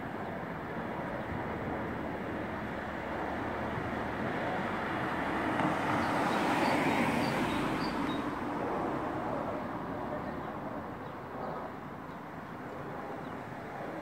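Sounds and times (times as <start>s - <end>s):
car passing by: 3.7s - 9.8s.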